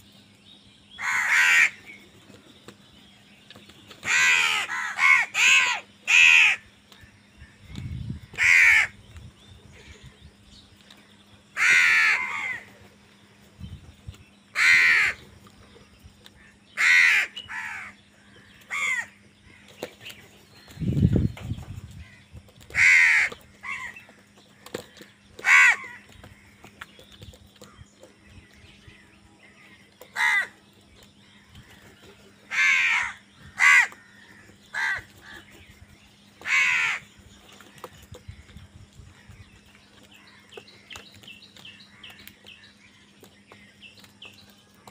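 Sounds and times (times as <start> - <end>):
crows cawing: 1.0 - 2.0, 4.0 - 6.7, 8.3 - 9.0, 11.6 - 12.7, 14.5 - 15.2, 16.4 - 19.8, 22.0 - 26.7, 29.7 - 30.6, 32.4 - 35.5, 36.4 - 37.2.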